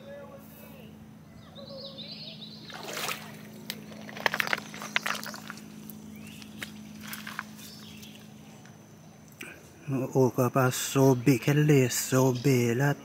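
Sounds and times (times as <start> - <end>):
steady low hum: 0.0 - 13.0
fish splashing: 2.6 - 7.6
water sloshing and splashing: 2.6 - 8.2.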